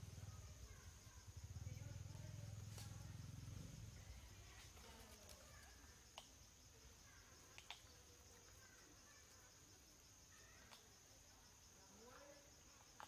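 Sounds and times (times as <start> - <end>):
high insect drone: 0.0 - 13.0
faint clicks or chirps: 5.2 - 6.4, 7.5 - 8.0, 10.6 - 10.9.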